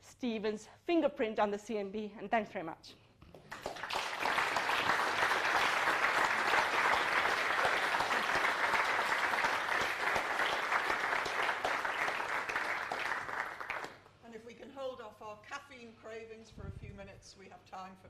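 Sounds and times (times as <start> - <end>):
audience applauding: 3.4 - 14.1.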